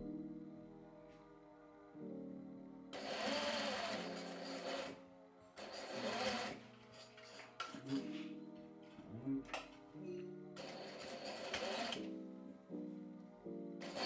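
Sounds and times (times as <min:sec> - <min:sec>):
electric sewing machine stitching: 0:03.0 - 0:05.0, 0:05.6 - 0:06.7, 0:10.6 - 0:12.2.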